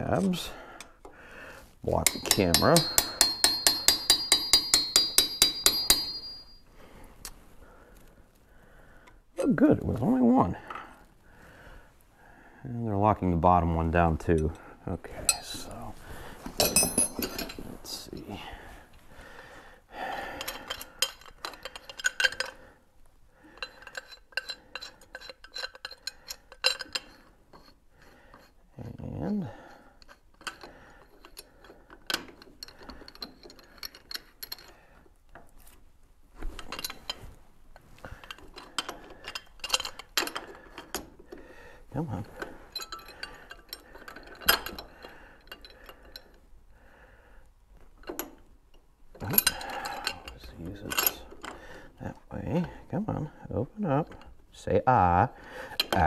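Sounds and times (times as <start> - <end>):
pipe wrench clinking on metal: 1.9 - 6.7, 14.2 - 15.8, 16.5 - 18.4, 20.3 - 22.6, 23.5 - 28.6, 30.0 - 34.8, 36.4 - 46.4, 48.0 - 51.7, 55.6 - 56.0.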